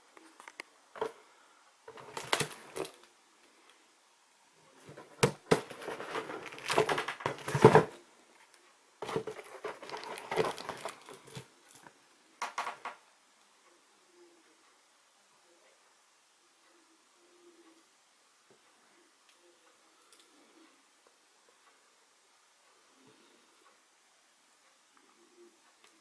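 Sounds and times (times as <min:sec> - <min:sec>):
cardboard box rustling and knocking: 0:05.0 - 0:08.0, 0:09.0 - 0:11.1.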